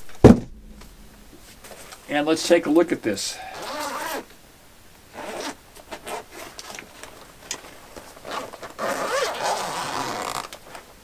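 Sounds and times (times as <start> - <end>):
zipper being pulled open: 3.5 - 4.3, 5.1 - 6.8, 8.2 - 10.8.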